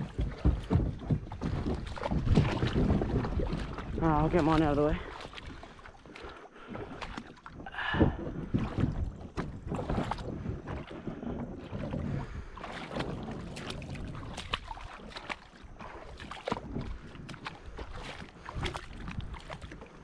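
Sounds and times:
fishing gear knocking on hull: 0.0s - 4.9s, 7.7s - 14.7s
wind on microphone: 0.0s - 5.7s, 6.6s - 20.0s
water sloshing around kayak: 0.0s - 20.0s.

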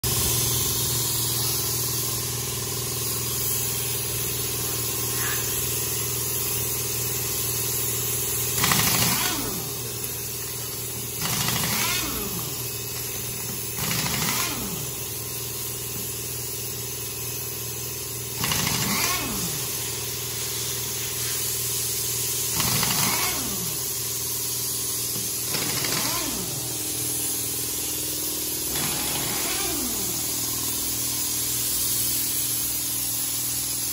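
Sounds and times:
steady engine drone: 0.0s - 16.1s, 16.9s - 33.8s
impact wrench bursts: 0.0s - 33.9s.

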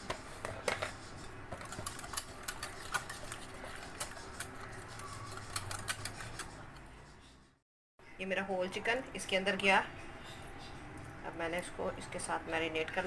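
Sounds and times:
whisk scraping glass bowl: 0.4s - 6.8s.

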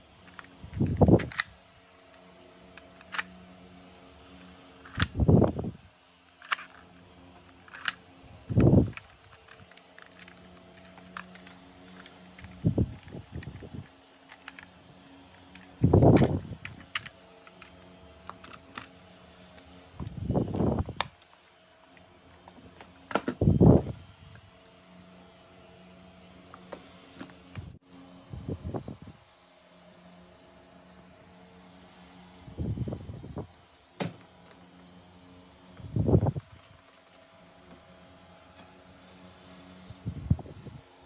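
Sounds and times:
plastic toy parts clicking: 0.2s - 2.2s, 2.8s - 3.3s, 4.8s - 5.1s, 6.3s - 14.7s, 15.3s - 18.9s.

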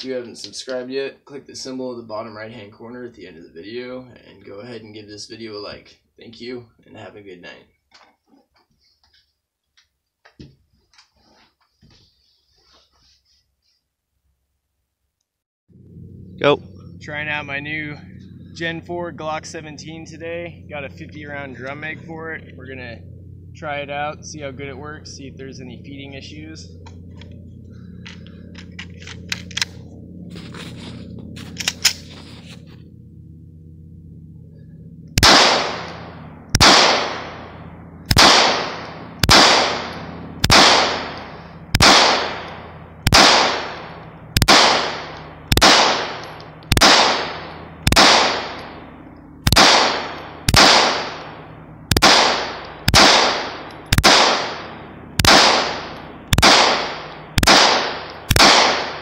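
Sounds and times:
pistol shots with echo: 35.2s - 59.0s.

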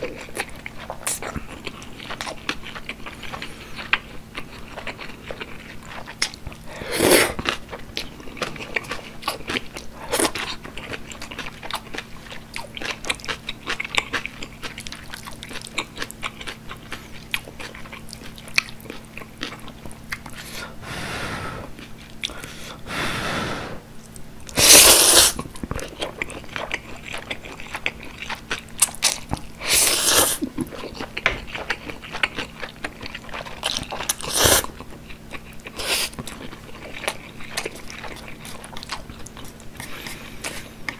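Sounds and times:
chewing noodles: 0.0s - 20.6s, 24.0s - 40.9s
loud noodle slurps: 24.6s - 25.4s.

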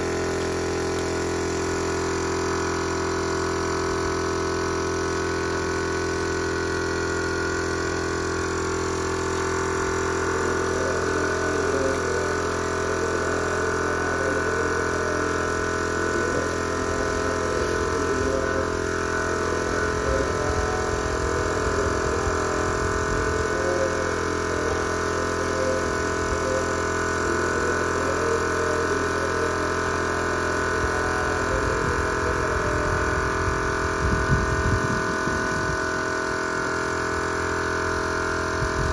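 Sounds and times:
air compressor humming: 0.0s - 38.9s.

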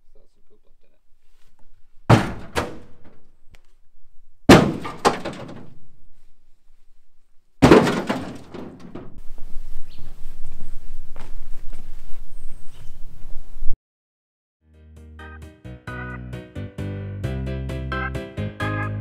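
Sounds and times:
debris crashing onto a pile: 4.5s - 5.8s, 7.6s - 9.1s.

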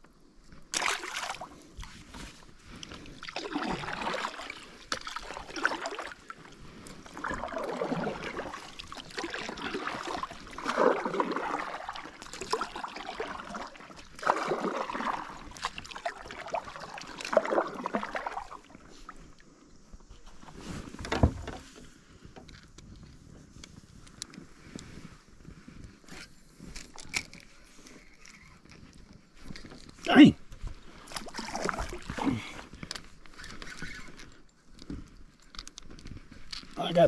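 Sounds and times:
paddle splashing in water: 0.6s - 19.4s, 29.4s - 34.4s
running water: 2.7s - 19.4s.

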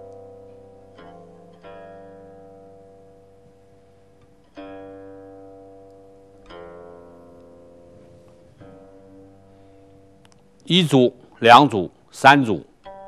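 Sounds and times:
plucked string instrument notes: 0.0s - 3.4s, 4.2s - 10.1s.

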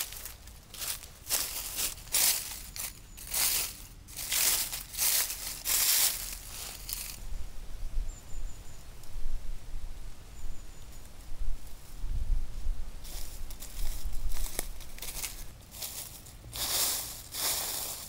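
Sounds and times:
rustling crunching noise: 0.0s - 7.2s, 13.0s - 18.0s.

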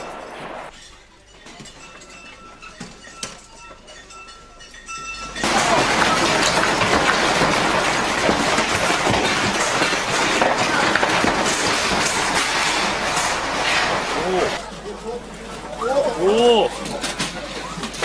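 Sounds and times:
building rattling in earthquake: 0.0s - 0.9s, 4.2s - 18.0s
small irregular clatters: 0.7s - 14.6s.

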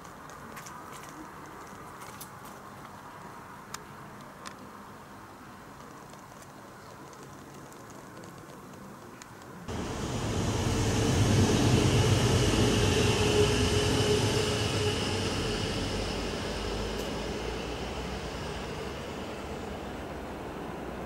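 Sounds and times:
electric train passing: 9.7s - 21.0s
train whine: 9.7s - 21.0s.

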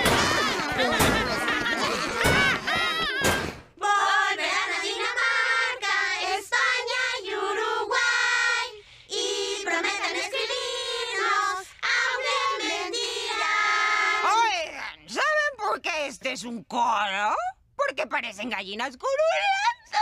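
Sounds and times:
children's choir singing: 3.8s - 14.3s.

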